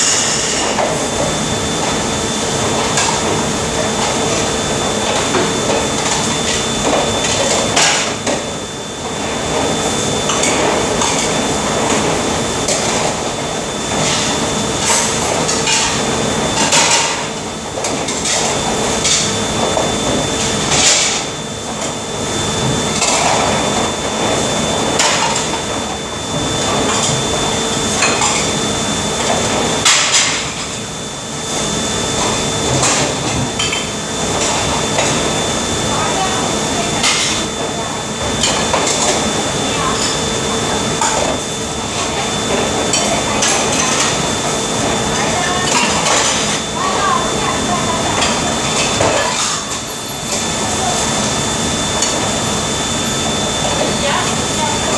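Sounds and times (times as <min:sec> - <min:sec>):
steady hum: 0:00.0 - 0:54.9
dishes clattering in a sink: 0:45.4 - 0:46.6, 0:48.1 - 0:50.4.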